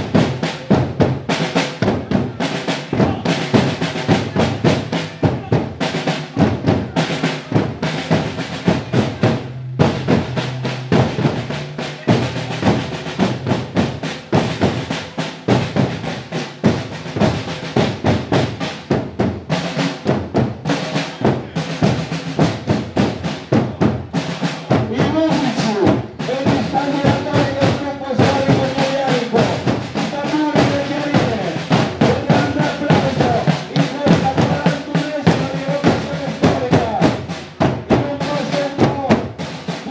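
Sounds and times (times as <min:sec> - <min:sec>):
bass drum strokes: 0:00.0 - 0:16.0
marching snare drum rolls: 0:00.0 - 0:39.9.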